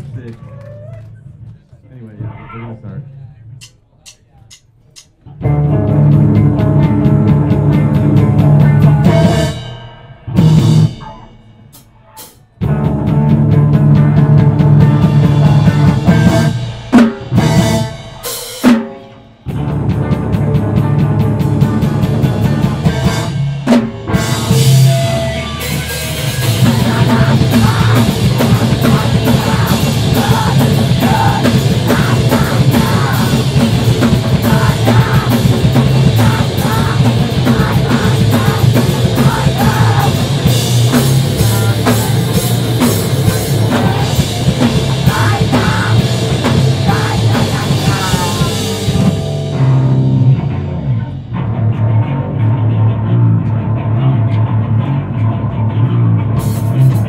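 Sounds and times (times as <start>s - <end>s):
pounding drum kit: 3.6s - 53.7s, 56.2s - 57.0s
distorted electric guitars: 5.2s - 57.0s.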